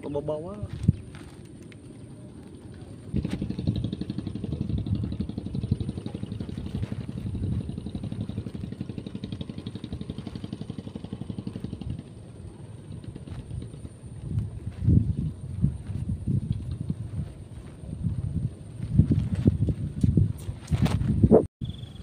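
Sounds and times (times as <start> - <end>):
small engine running: 1.3 - 17.5.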